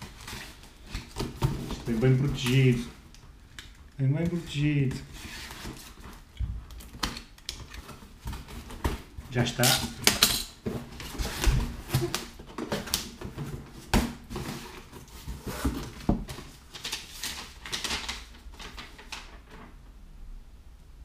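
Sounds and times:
cardboard box rustles and scrapes: 0:10.7 - 0:17.3.

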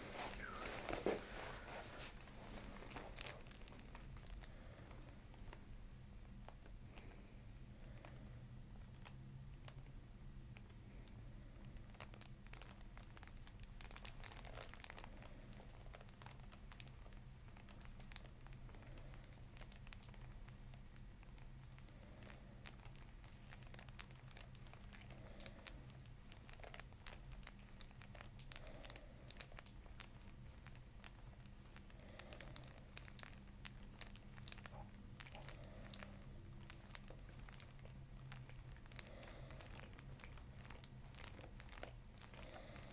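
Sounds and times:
paper crinkling: 0:00.0 - 0:07.1, 0:11.7 - 0:42.9.

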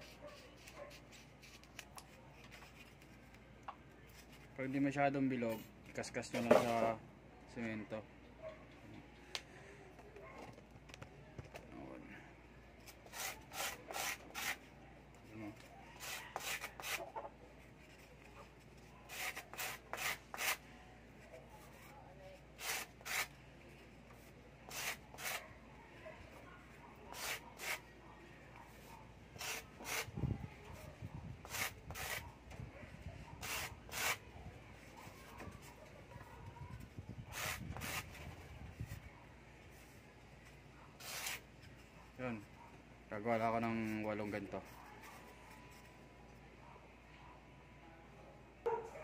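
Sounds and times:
styrofoam scraping on concrete: 0:22.6 - 0:23.3, 0:24.7 - 0:25.4, 0:31.5 - 0:32.2, 0:33.4 - 0:34.2, 0:37.3 - 0:38.1, 0:41.0 - 0:41.4.

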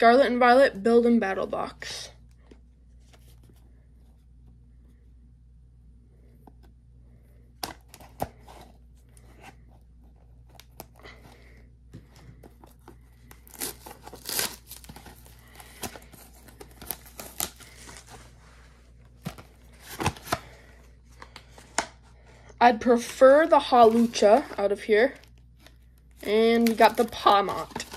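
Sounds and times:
plastic and cardboard crinkling: 0:12.0 - 0:22.0, 0:22.8 - 0:27.9.

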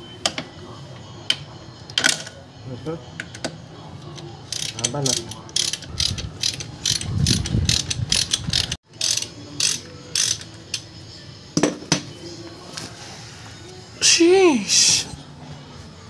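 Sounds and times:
socket ratchet clicking: 0:04.5 - 0:10.8.

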